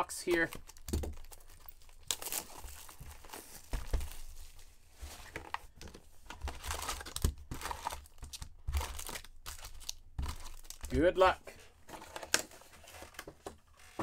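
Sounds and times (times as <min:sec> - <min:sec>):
plastic wrapping crinkling and tearing: 0:00.2 - 0:04.7, 0:05.3 - 0:11.3.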